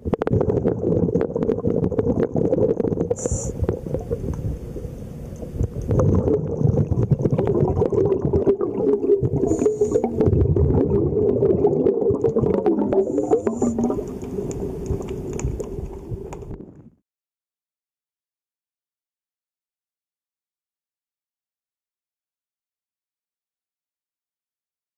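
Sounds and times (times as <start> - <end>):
gurgling exhaled bubbles: 0.0 - 17.0
regulator hissing inhalations: 3.2 - 3.6, 9.4 - 10.2, 13.0 - 14.0.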